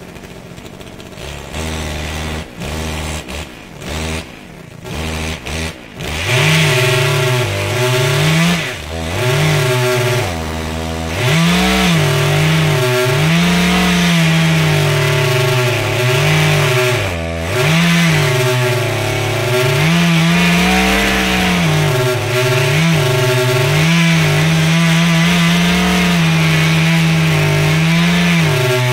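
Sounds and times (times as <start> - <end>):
chainsaw cutting tree trunk: 0.0 - 28.9.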